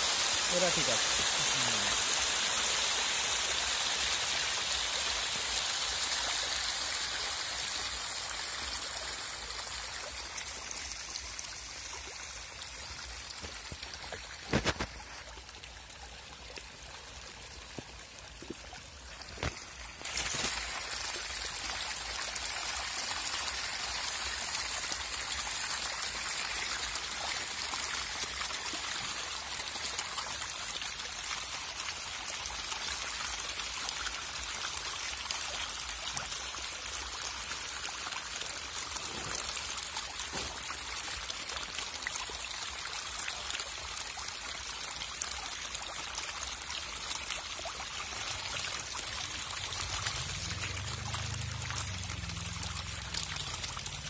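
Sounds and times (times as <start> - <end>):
fish thrashing and splashing: 14.2 - 15.0, 19.4 - 21.1.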